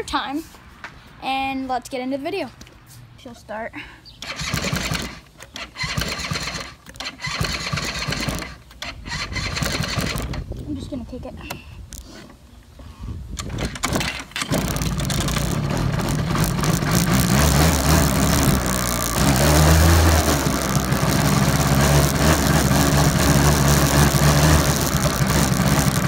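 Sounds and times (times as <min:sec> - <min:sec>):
small engine running: 0:04.2 - 0:10.4, 0:13.4 - 0:26.0
engine kick-start: 0:04.2 - 0:10.5, 0:13.4 - 0:26.0.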